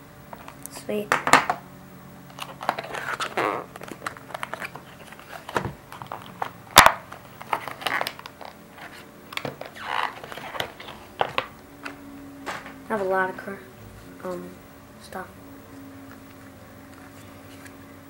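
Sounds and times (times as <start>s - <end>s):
plastic and cardboard crinkling: 2.3s - 13.2s, 16.1s - 17.9s.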